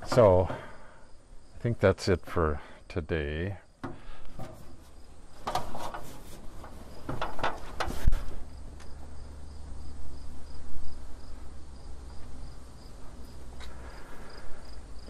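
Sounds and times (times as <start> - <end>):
insect chirping: 0.0 - 1.6, 3.6 - 5.5, 6.7 - 15.0
sharp knocks and clatters: 5.4 - 8.3.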